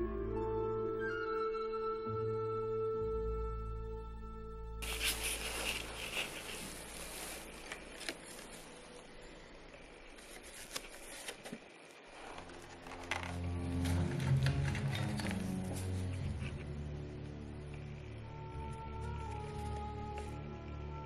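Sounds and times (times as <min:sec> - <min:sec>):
music: 0:00.0 - 0:21.0
paper rustling: 0:04.8 - 0:09.1, 0:10.1 - 0:16.7.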